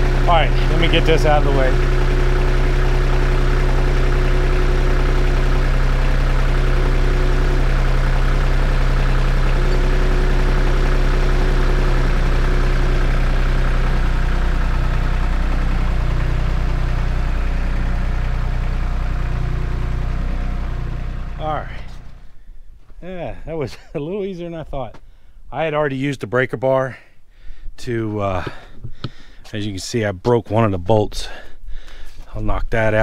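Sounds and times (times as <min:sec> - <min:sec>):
tractor engine running: 0:00.0 - 0:23.6.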